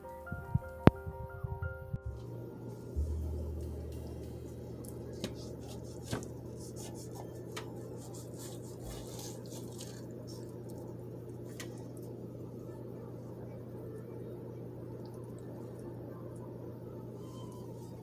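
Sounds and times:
steady low hum: 0.0 - 18.0
flaky pastry crackling: 2.9 - 13.8.

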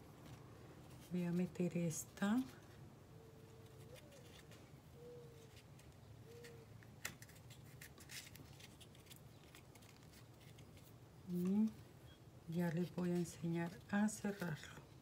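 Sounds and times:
faint rustles of cord: 0.0 - 11.9.

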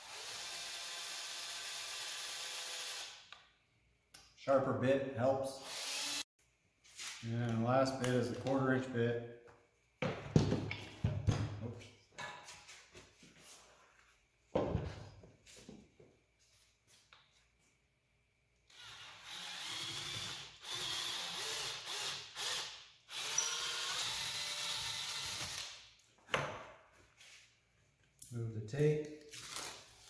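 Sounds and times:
cordless drill drilling plastic: 0.0 - 3.1, 18.7 - 25.7.

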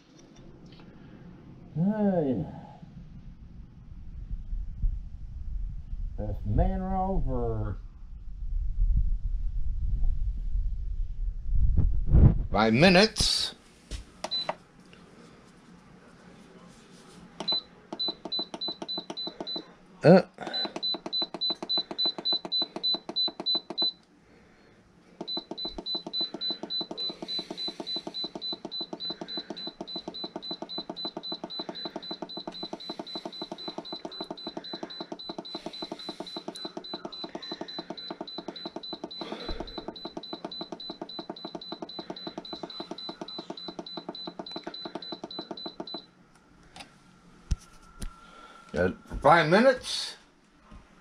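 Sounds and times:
control panel beeping: 14.2 - 14.6, 17.4 - 19.7, 20.5 - 24.0, 25.2 - 46.1.

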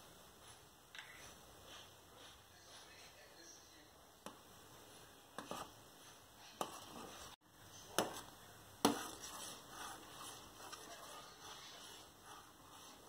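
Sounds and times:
metal spoon stirring milk: 6.4 - 13.0.

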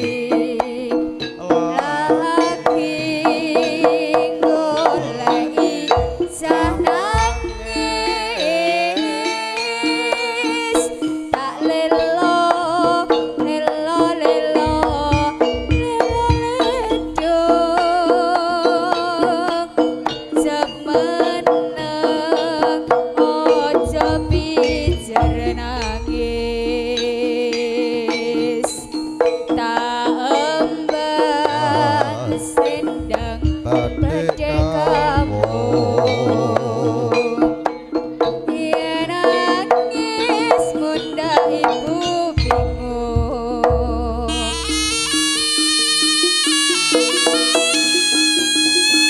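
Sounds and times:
wavering pitched melody: 0.0 - 19.7, 23.6 - 49.0
hand drums beating: 0.0 - 49.0
deep low drum strokes: 6.0 - 8.7, 14.6 - 18.1, 23.9 - 27.2, 32.9 - 36.2, 42.4 - 44.9.

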